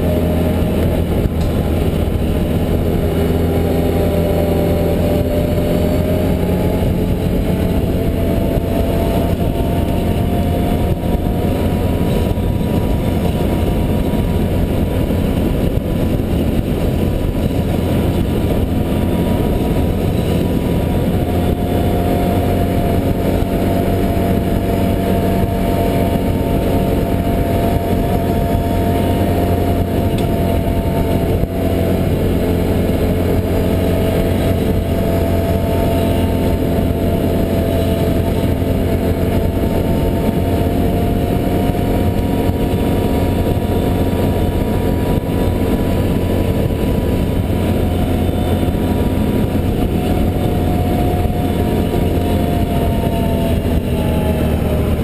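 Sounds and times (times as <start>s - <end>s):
atv engine droning: 0.0s - 55.0s.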